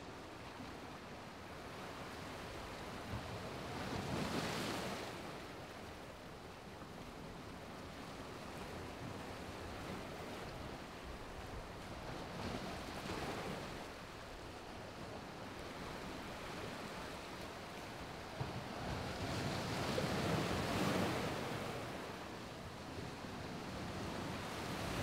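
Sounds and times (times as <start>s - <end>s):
ocean surf breaking on beach: 15.4s - 25.0s.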